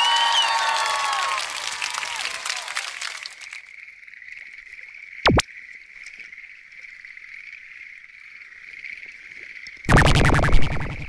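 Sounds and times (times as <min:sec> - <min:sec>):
frogs calling: 0:03.5 - 0:11.0
loud pitch sweep: 0:09.9 - 0:11.0
loud rapid pulsing: 0:09.9 - 0:11.0.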